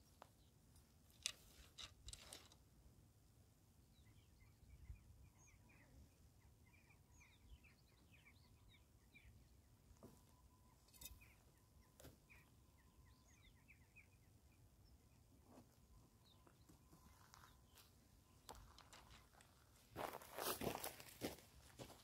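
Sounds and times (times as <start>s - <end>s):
small birds chirping: 3.9s - 20.6s.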